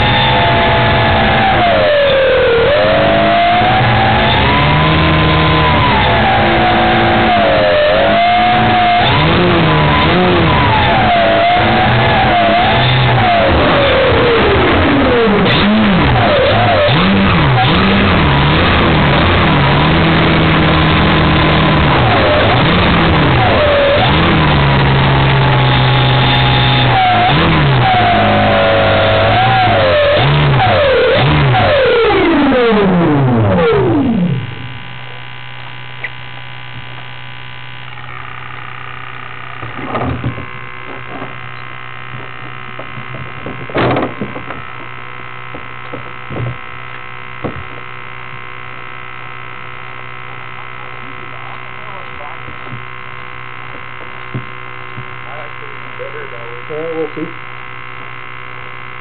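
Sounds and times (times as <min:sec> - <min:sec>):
electric motor and propeller: 0:00.0 - 0:49.0
low steady hum: 0:32.7 - 0:59.0.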